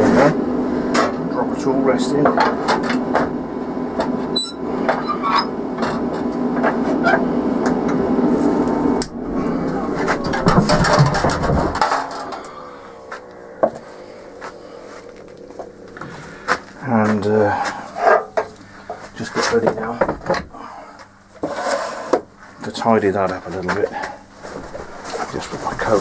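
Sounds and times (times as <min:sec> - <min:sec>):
machine hum: 0:00.0 - 0:26.0
lathe parts knocking and clattering: 0:10.1 - 0:12.5.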